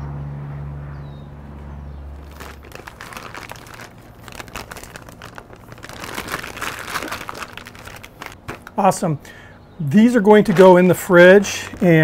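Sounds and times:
plastic bag crinkling: 0:02.2 - 0:08.8, 0:11.4 - 0:12.0.

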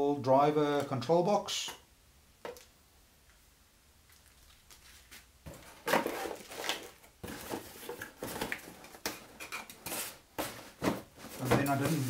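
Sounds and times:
cardboard packaging rustling: 0:04.5 - 0:12.0.

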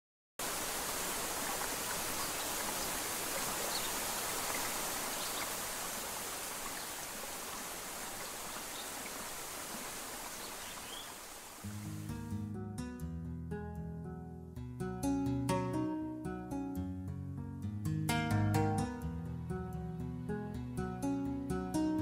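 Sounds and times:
river water rushing: 0:00.4 - 0:12.1.

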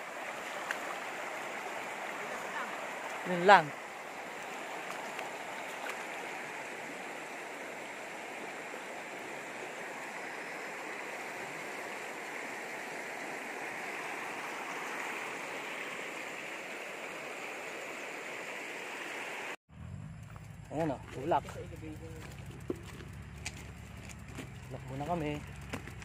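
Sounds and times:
river rushing over rocks: 0:00.0 - 0:19.6.

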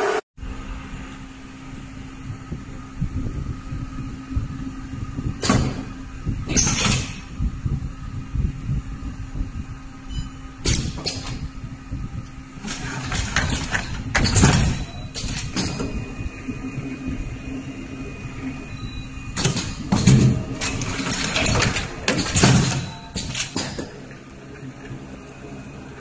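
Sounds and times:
machine humming: 0:00.0 - 0:26.0
pneumatic hissing and clattering: 0:06.5 - 0:07.3, 0:10.6 - 0:11.4, 0:19.4 - 0:23.9.

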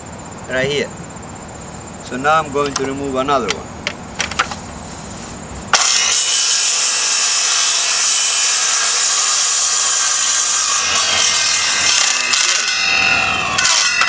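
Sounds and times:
circular saw cutting: 0:05.7 - 0:14.0.

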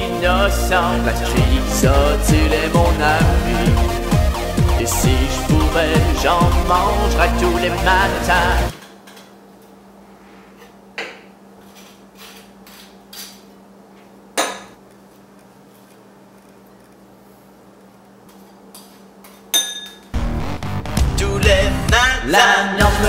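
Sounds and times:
knife scraping toast: 0:11.6 - 0:13.5
knife clinking on ceramic plate: 0:19.4 - 0:20.1.

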